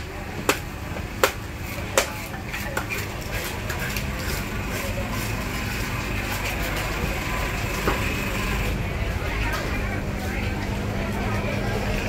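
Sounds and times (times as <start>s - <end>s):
market voices: 0.0s - 12.0s
cleaver chopping on block: 1.2s - 1.4s.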